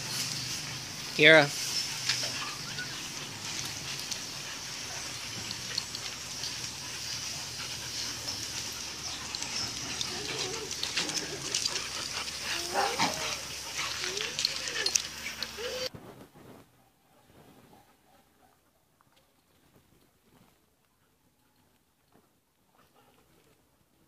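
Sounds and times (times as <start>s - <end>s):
paws on gravel: 0.0s - 15.9s
dogs whining: 1.7s - 15.9s.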